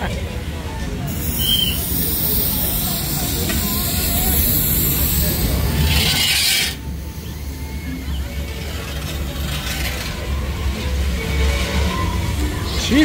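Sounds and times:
fog machine hissing: 1.1s - 10.1s.

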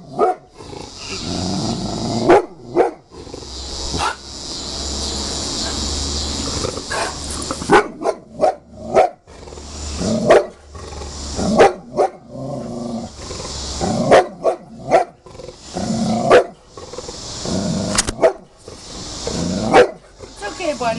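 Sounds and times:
dog growling low: 0.0s - 4.2s, 5.6s - 7.7s, 8.7s - 11.6s, 12.3s - 14.1s, 14.7s - 20.4s
dog barking loudly: 0.1s - 0.5s, 2.2s - 3.1s, 3.9s - 4.3s, 6.8s - 9.2s, 10.1s - 10.7s, 11.4s - 12.3s, 14.0s - 15.2s, 16.2s - 16.6s, 18.2s - 18.6s, 19.6s - 20.0s.

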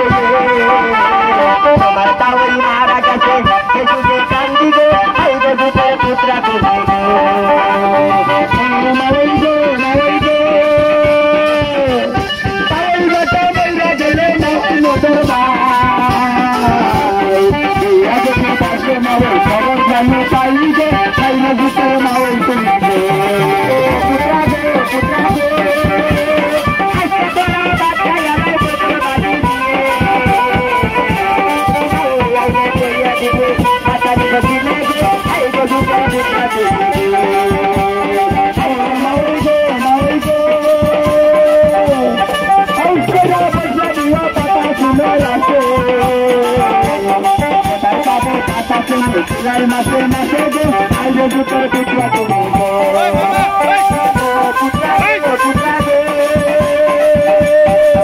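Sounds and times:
man singing into microphone: 0.0s - 58.0s
rattling drumming beat: 0.0s - 58.0s
plucked strings: 6.0s - 10.4s, 15.6s - 38.0s.

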